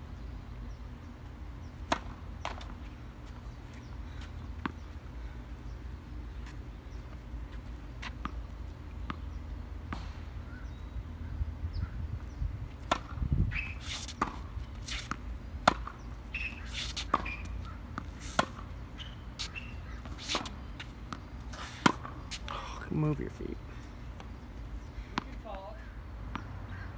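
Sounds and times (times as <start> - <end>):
tennis balls hit by rackets: 1.7 - 3.4, 4.2 - 4.9, 8.0 - 10.6, 12.8 - 22.6
tennis balls bouncing on court: 1.7 - 5.1, 5.7 - 10.4, 12.7 - 22.6, 24.0 - 26.7.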